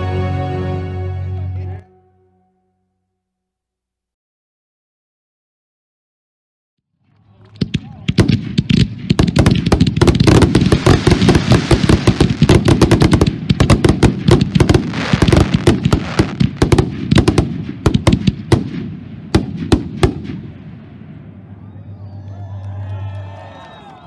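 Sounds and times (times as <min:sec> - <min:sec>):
crackling fireworks stars: 0:07.1 - 0:24.0.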